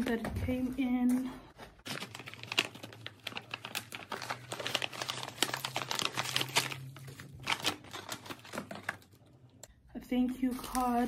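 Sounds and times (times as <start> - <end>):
paper bag crinkling: 1.8 - 9.2.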